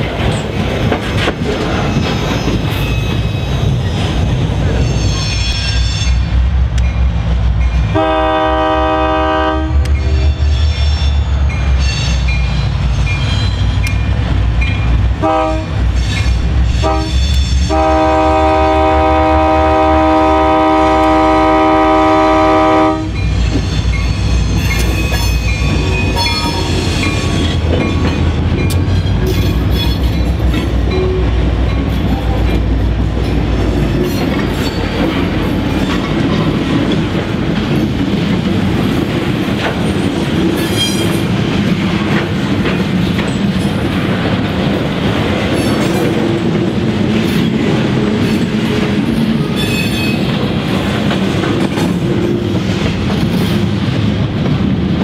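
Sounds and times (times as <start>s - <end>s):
train wheels clacking: 0.0s - 8.6s, 23.0s - 55.0s
locomotive air horn blasts: 8.0s - 9.9s, 15.2s - 15.8s, 16.7s - 23.2s.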